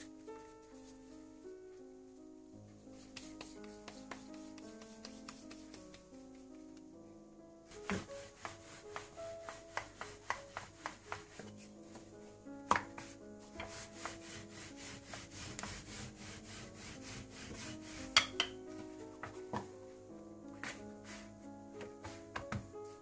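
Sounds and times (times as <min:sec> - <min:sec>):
soft background music: 0:00.0 - 0:23.0
rolling pin rolling dough: 0:02.8 - 0:06.9, 0:07.7 - 0:19.9, 0:20.5 - 0:23.0
rolling pin knocks: 0:07.7 - 0:14.3, 0:17.5 - 0:19.7, 0:21.8 - 0:22.7.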